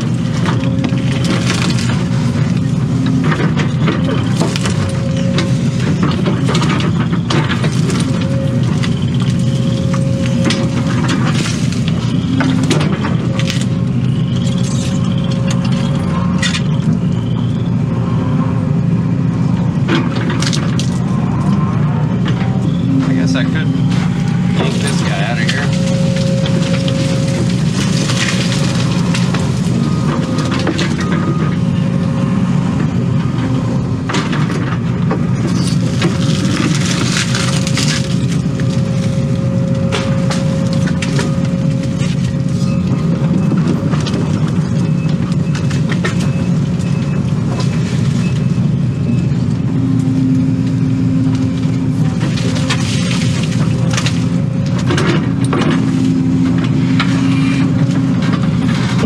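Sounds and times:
wood cracking and snapping: 0.0 - 17.0, 19.9 - 21.6, 23.9 - 31.3, 34.1 - 48.2, 52.0 - 59.0
excavator diesel engine under load: 0.0 - 59.0.

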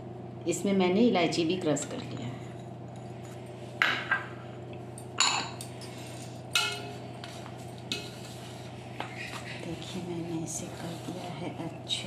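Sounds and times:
low steady hum: 0.0 - 12.0
hands mixing in steel bowl: 6.6 - 12.0.

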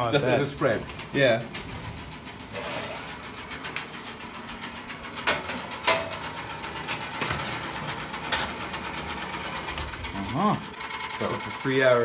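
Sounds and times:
steady mechanical whirr: 0.0 - 12.0
roasting pan knocking oven rails: 4.9 - 9.9.

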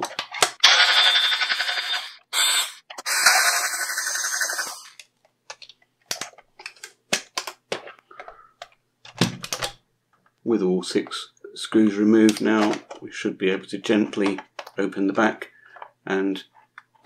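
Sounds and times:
cordless screwdriver whirring: 0.6 - 5.0.

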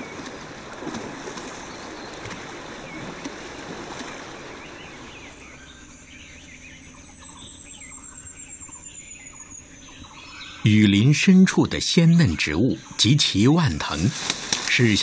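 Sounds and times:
elephants wading through water: 0.0 - 6.5, 10.7 - 15.0
birds chirping: 1.3 - 15.0.

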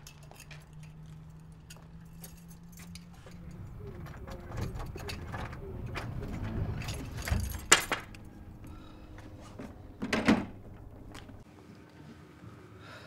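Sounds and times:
lock clicking: 0.0 - 8.7
key rattling in a lock: 0.0 - 8.8.

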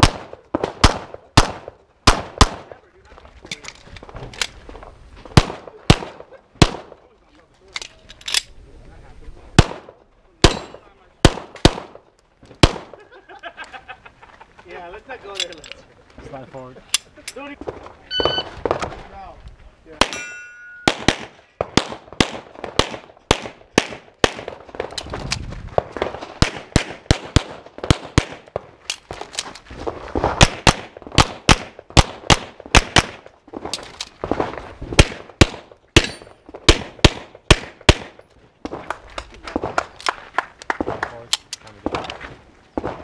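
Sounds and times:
pistol gunshots: 0.0 - 2.7, 5.4 - 7.0, 9.6 - 12.0, 12.6 - 13.0, 19.9 - 25.0, 25.9 - 28.6, 30.2 - 38.8
shot timer beep: 18.1 - 18.5.

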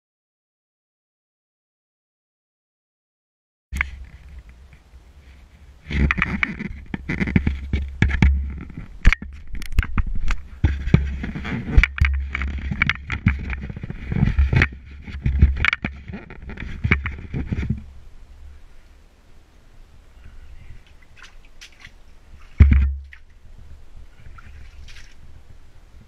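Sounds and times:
camera handling rumble: 3.8 - 17.9
scraping and knocking against rock: 5.8 - 17.9, 20.8 - 23.2.

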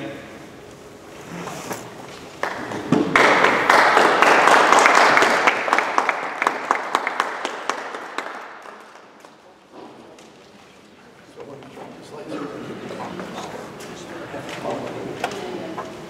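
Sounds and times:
audience applauding: 2.3 - 9.4.

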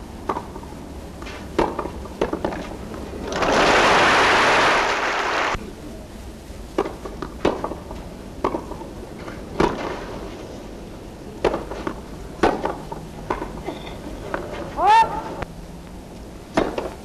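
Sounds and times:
tennis ball struck with rackets: 1.6 - 2.7, 11.4 - 13.6, 16.5 - 17.0.

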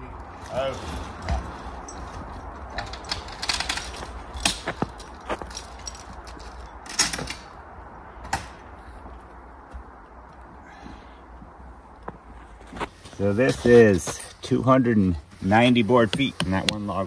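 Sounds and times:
sharp clicks and crunches: 2.6 - 7.6.

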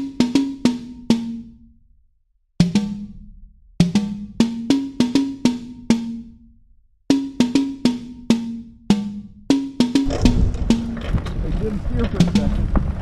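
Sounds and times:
low drum struck in runs: 9.8 - 13.0.

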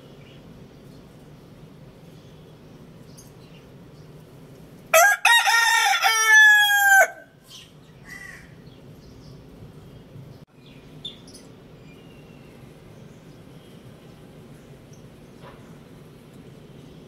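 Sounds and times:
rooster crowing: 4.9 - 7.4.

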